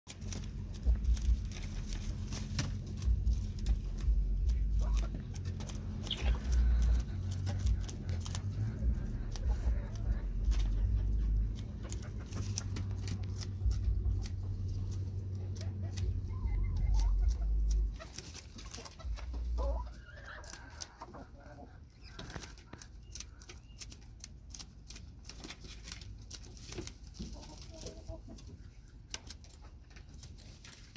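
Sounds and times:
low rumble: 0.1s - 22.1s
chicken clucking: 0.1s - 30.9s.

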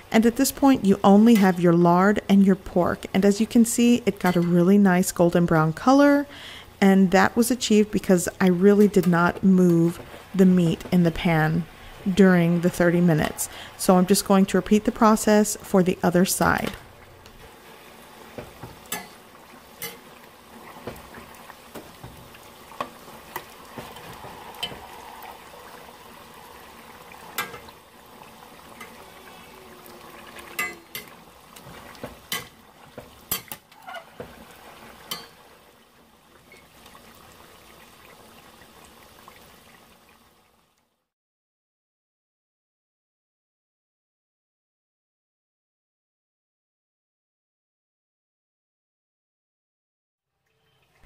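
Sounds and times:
meat sizzling in a pot: 16.4s - 40.6s
metal spatula scraping pot: 23.8s - 25.0s, 28.8s - 31.2s.

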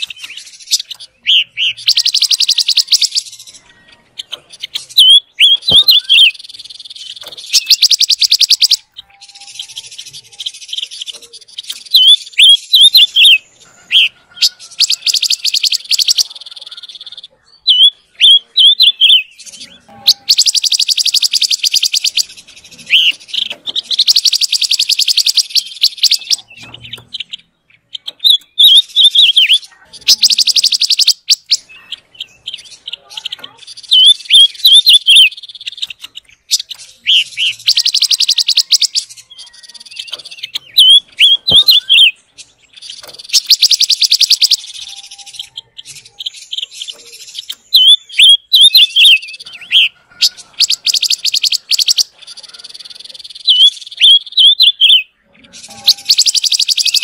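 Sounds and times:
bird whistled notes: 0.0s - 11.1s, 17.7s - 27.4s, 28.2s - 32.6s, 36.6s - 42.2s, 42.8s - 57.0s
bird buzzy trills: 0.0s - 57.0s.

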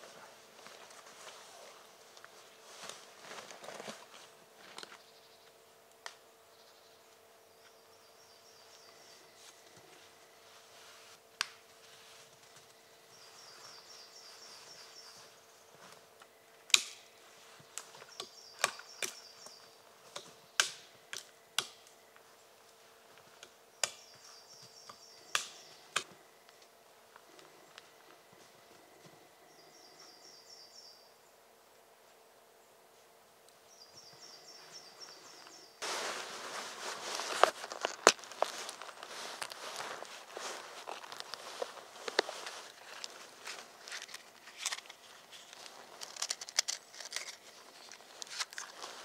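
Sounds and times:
dry twigs snapping: 16.7s - 17.1s, 24.9s - 26.7s, 36.9s - 48.8s.

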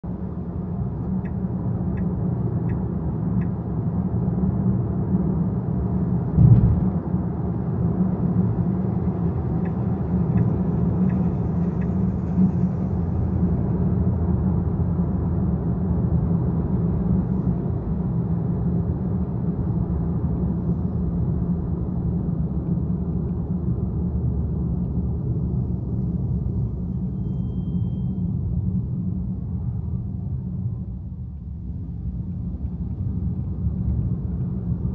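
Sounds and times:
car road and engine rumble: 0.1s - 34.9s
thump: 6.4s - 7.0s.

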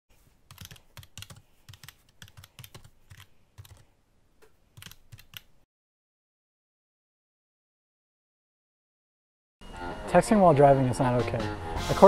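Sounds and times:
computer keyboard typing: 0.5s - 3.9s, 4.8s - 5.6s.

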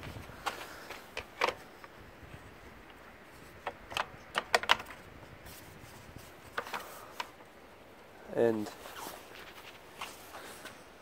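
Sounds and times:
plastic clicks: 0.4s - 2.0s, 3.6s - 5.0s.

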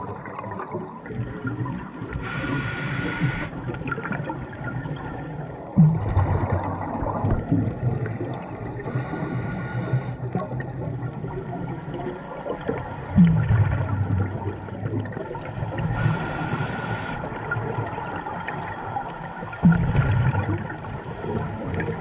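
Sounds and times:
exhaled bubbles gurgling: 0.0s - 22.0s
regulator inhale hiss: 2.2s - 3.6s, 8.8s - 10.2s, 15.9s - 17.3s.

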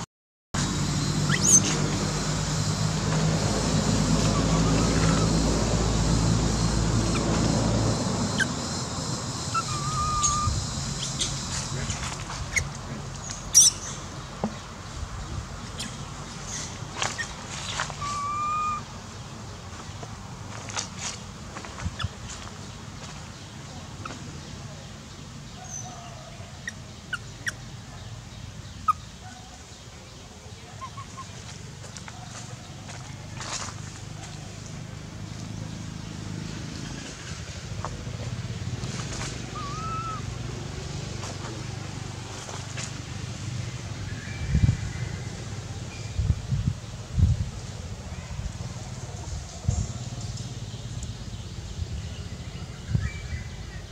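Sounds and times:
low engine hum: 0.6s - 53.9s
short high rising squeak: 1.0s - 2.0s, 8.2s - 11.8s
high chirping animal calls: 1.0s - 2.3s, 3.9s - 14.2s, 15.6s - 19.0s, 25.5s - 29.7s, 30.5s - 31.4s, 39.5s - 40.4s.

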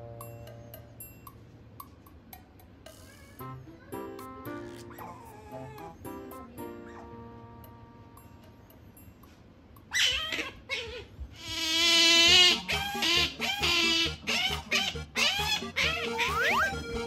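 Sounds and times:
otter squealing: 11.5s - 17.0s.

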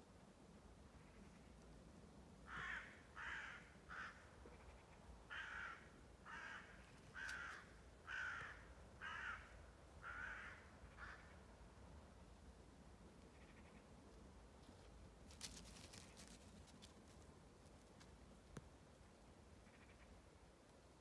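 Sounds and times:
faint crow cawing: 2.4s - 11.5s, 13.2s - 14.0s, 19.6s - 20.2s.

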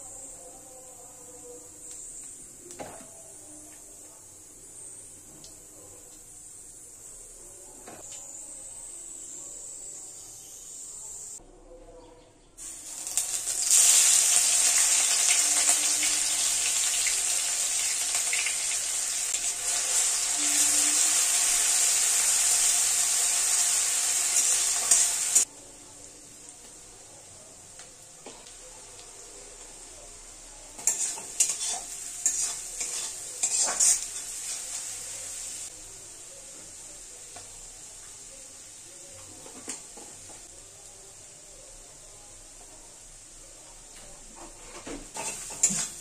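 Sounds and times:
onions sizzling in hot oil: 12.6s - 25.5s, 27.7s - 40.5s, 42.0s - 43.4s, 45.0s - 46.0s
spatula scraping a pan: 30.8s - 34.7s.

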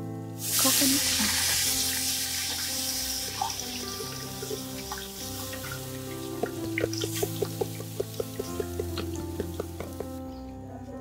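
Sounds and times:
soft background music: 0.0s - 11.0s
coconut milk pouring into pot: 0.4s - 10.2s
liquid splashing on frying spices: 0.4s - 10.2s.

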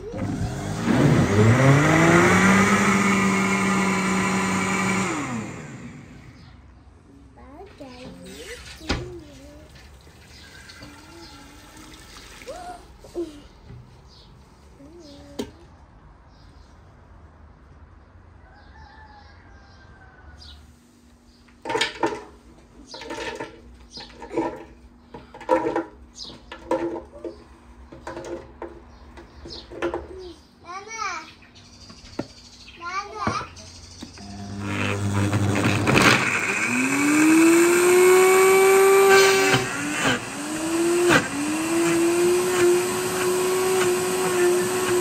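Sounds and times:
blender motor whining: 0.0s - 6.5s, 34.1s - 45.0s
rooster crowing: 18.4s - 20.6s.

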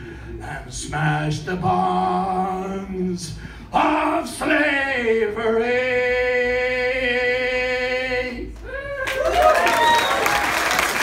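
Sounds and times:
audience applause and cheering: 8.6s - 11.0s.

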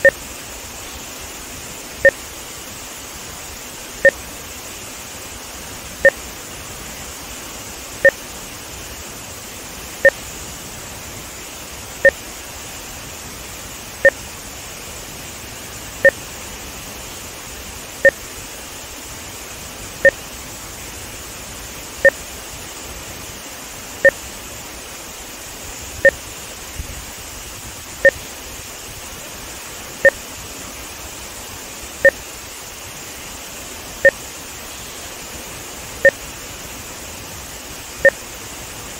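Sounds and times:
water rushing past a dam: 0.0s - 38.9s
short electronic beeps: 26.0s - 26.2s.

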